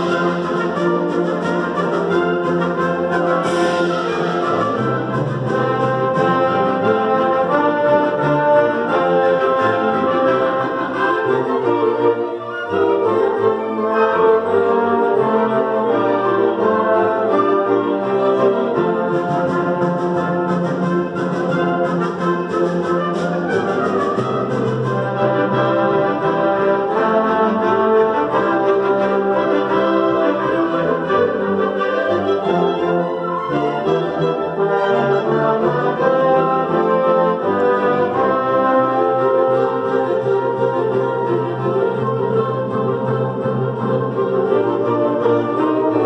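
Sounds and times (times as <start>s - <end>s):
wind band playing held chords: 0.0s - 46.0s.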